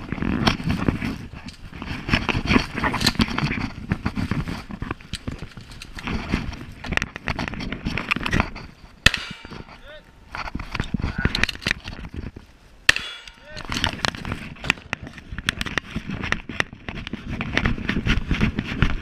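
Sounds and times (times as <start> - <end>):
sharp crack: 9.0 - 11.8, 12.8 - 15.8.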